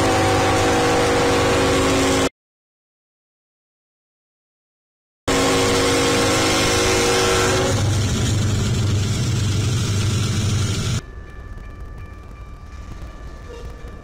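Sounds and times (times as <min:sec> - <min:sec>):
locomotive horn chord: 0:00.0 - 0:02.3, 0:05.3 - 0:09.0
diesel engine rumble: 0:07.7 - 0:11.0.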